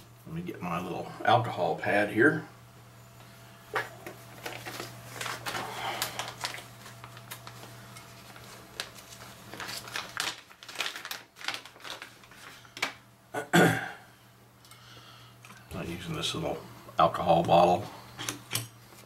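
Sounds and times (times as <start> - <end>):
low steady hum: 0.0 - 19.0
small items clicking and rustling: 4.4 - 13.0.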